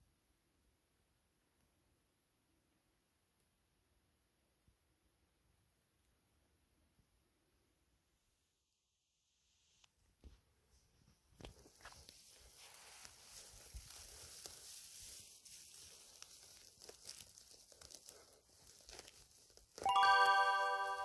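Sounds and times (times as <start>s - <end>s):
dry grass rustling: 11.5s - 19.9s.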